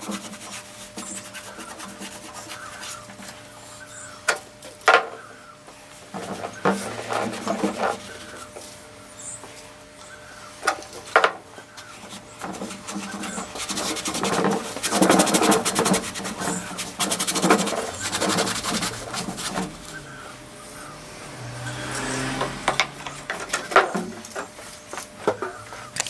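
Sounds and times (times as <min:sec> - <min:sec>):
rag rubbing on metal: 0:00.0 - 0:04.1, 0:10.6 - 0:20.9.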